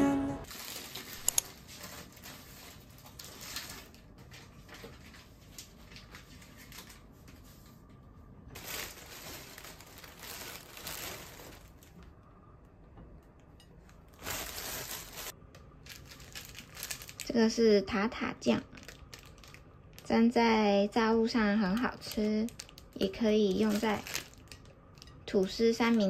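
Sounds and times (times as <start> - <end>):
plastic packaging crinkling: 0.4 - 7.6, 8.5 - 12.0, 13.8 - 17.7, 18.3 - 20.2, 21.6 - 26.0.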